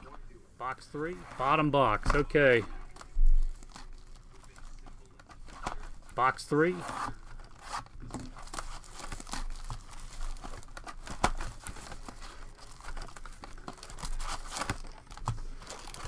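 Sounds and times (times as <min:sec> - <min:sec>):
card packs crinkling: 0:00.0 - 0:16.0
cardboard box rustling: 0:06.7 - 0:16.0.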